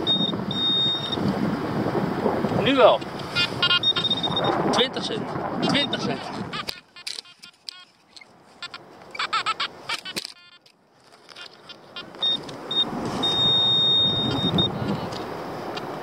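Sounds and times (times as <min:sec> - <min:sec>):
metal detector beeps: 0:00.0 - 0:01.2, 0:03.3 - 0:04.6, 0:05.7 - 0:07.9, 0:08.6 - 0:10.7, 0:11.3 - 0:15.2
warbling detector tones: 0:00.0 - 0:01.3, 0:03.3 - 0:05.0, 0:05.6 - 0:10.7, 0:11.3 - 0:15.2.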